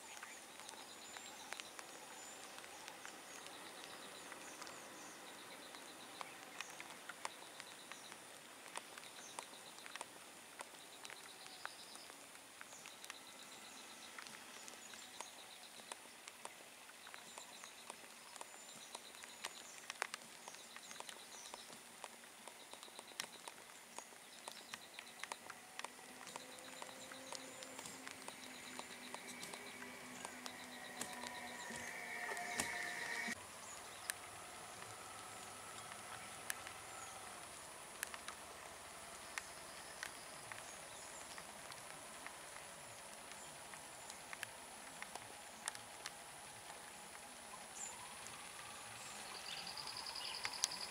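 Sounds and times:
sharp clicks: 0:17.1 - 0:38.4
rapid high ticking calls: 0:22.5 - 0:38.4
bird chirps: 0:22.6 - 0:37.3, 0:47.7 - 0:50.9
low steady hum: 0:24.2 - 0:50.9.

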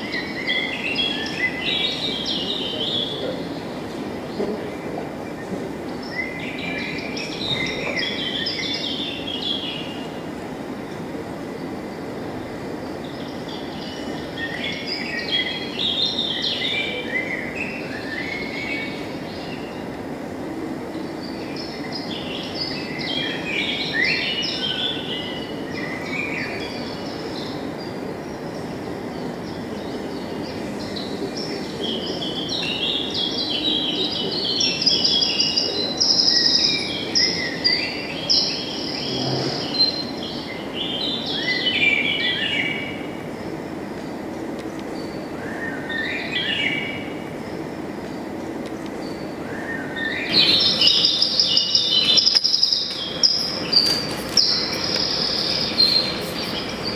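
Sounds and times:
low background noise: 0:00.0 - 0:56.9
birds chirping and singing: 0:44.9 - 0:56.9.

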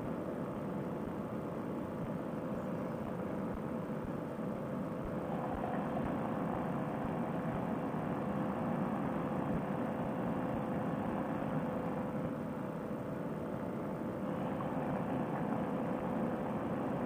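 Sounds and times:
paramotor engine droning: 0:05.0 - 0:17.0.

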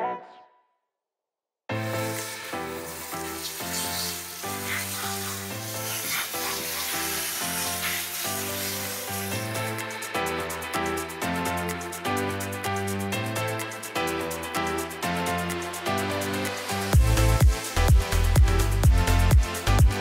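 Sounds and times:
hose water spraying: 0:01.7 - 0:11.1
background music: 0:01.7 - 0:20.0.

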